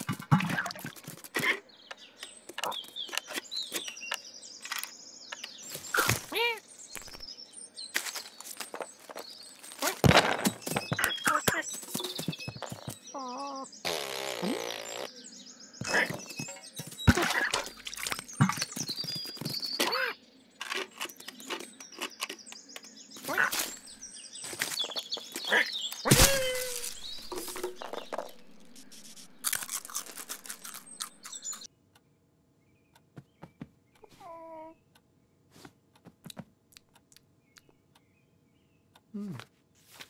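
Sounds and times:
cartoon scrabbling and knocks: 0:00.0 - 0:01.5, 0:26.1 - 0:28.4
high chirping and squeaking calls: 0:00.0 - 0:07.3, 0:08.1 - 0:31.7, 0:34.0 - 0:34.8.

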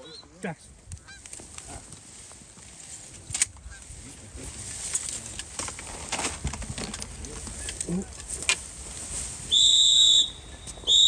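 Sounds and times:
geese honking faintly: 0:03.6 - 0:04.2.

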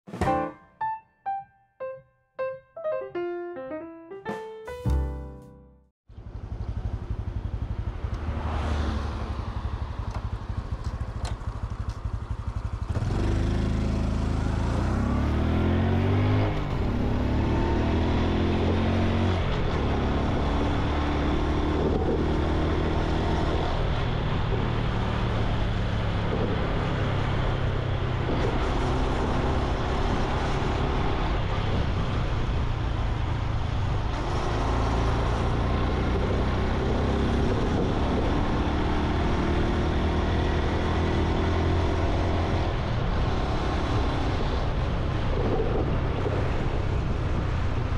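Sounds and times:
motorcycle engine shifting gears: 0:06.1 - 0:31.9.

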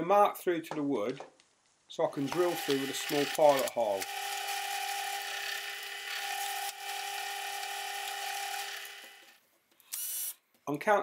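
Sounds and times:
drill press drilling wood: 0:02.2 - 0:09.4.

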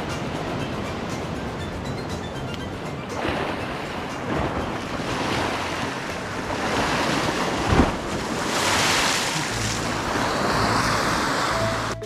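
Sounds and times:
wind buffeting microphone: 0:02.6 - 0:11.9
sea waves washing against rocks: 0:02.9 - 0:12.0.

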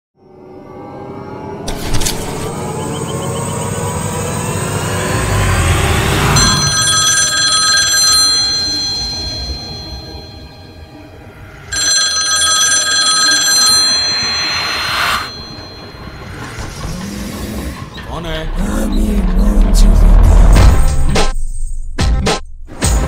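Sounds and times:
old telephone ringing: 0:06.4 - 0:10.8, 0:11.6 - 0:16.4
low rumble: 0:14.5 - 0:21.4.

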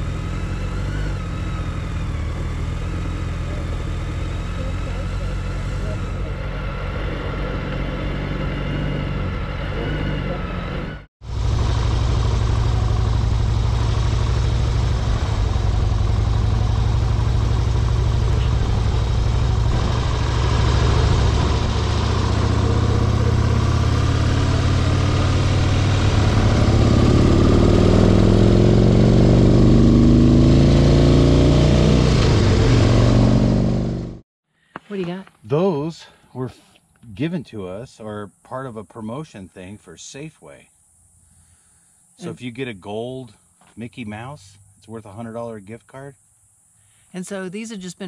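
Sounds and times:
motorcycle engine running: 0:00.0 - 0:34.2.

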